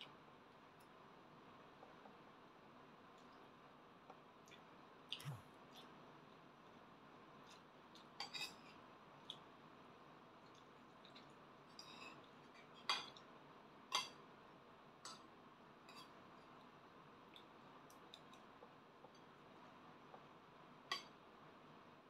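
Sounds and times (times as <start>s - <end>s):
cutlery clinking on plate: 11.8s - 13.2s.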